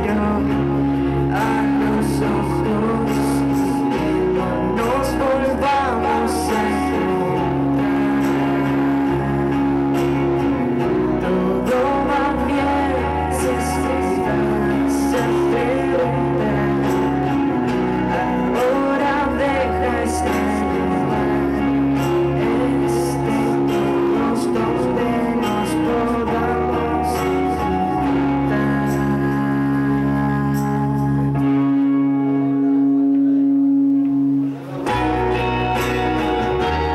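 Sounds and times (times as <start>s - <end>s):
acoustic guitar strumming: 0.0s - 36.9s
woman singing into microphone: 11.0s - 31.7s.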